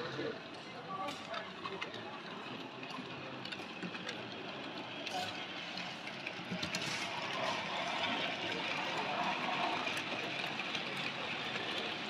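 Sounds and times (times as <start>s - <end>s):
wheels rolling on rails: 0.0s - 12.0s
model train motor whirring: 3.4s - 12.0s.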